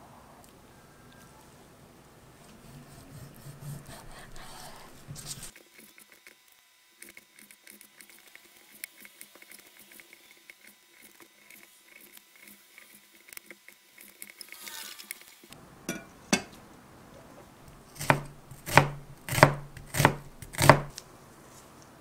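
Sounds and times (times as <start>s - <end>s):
knife tapping cutting board: 15.9s - 16.5s, 18.0s - 20.9s.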